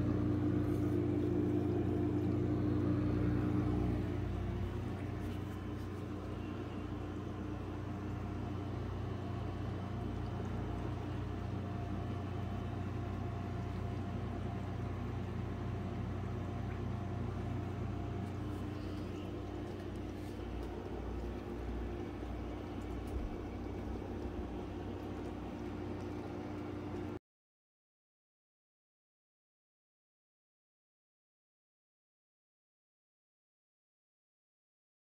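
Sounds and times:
aquarium pump electric hum: 0:00.0 - 0:27.2.

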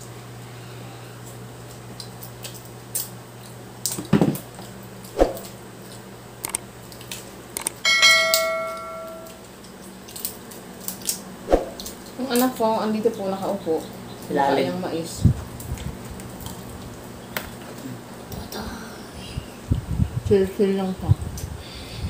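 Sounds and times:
crab shell cracking: 0:06.4 - 0:07.8, 0:09.5 - 0:12.5
metal dish clinking: 0:07.9 - 0:09.4.

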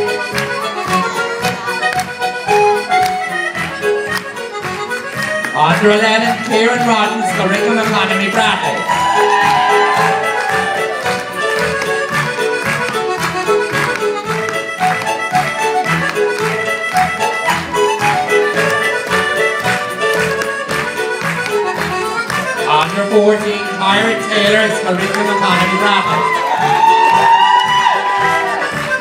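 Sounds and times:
accordion dance tune: 0:00.0 - 0:29.0
audience shouting and cheering: 0:07.4 - 0:11.8, 0:23.8 - 0:29.0.

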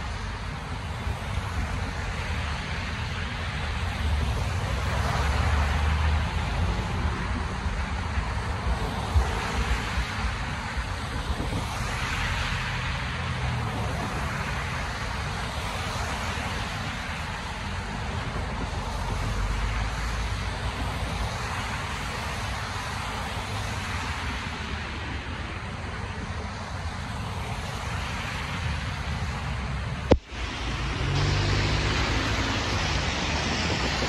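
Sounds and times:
tyres hissing on wet road: 0:00.0 - 0:34.0
low engine rumble: 0:29.5 - 0:34.0.

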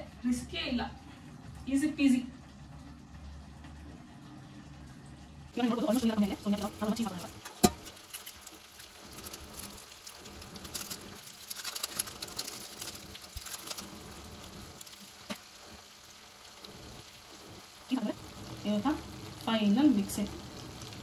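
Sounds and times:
spaghetti sizzling in pan: 0:05.5 - 0:21.0
grated cheese pattering: 0:05.6 - 0:17.8.

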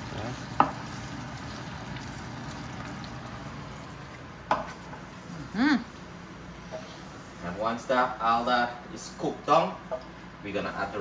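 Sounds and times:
food sizzling in oil: 0:00.0 - 0:05.3.

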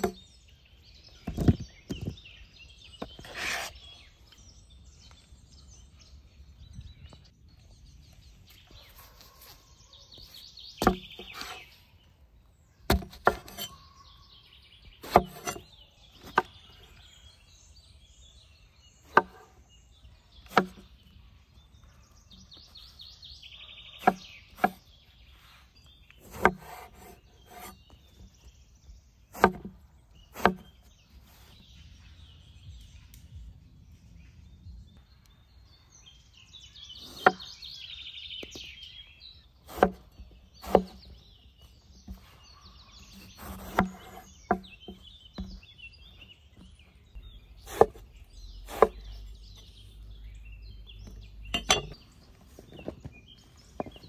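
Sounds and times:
birds chirping: 0:00.0 - 0:54.0
knife cutting onto wooden board: 0:03.0 - 0:03.8, 0:12.9 - 0:13.8, 0:15.0 - 0:16.5, 0:26.2 - 0:27.8, 0:43.2 - 0:44.6, 0:48.7 - 0:49.0.

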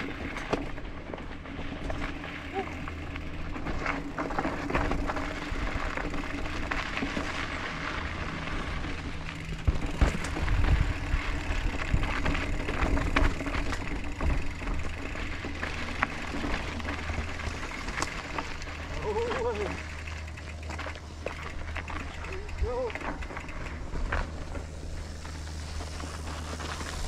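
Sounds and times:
bike rattling and knocking: 0:00.0 - 0:27.0
bike tyres rumbling on dirt: 0:00.0 - 0:27.0
wind noise: 0:09.4 - 0:15.0.

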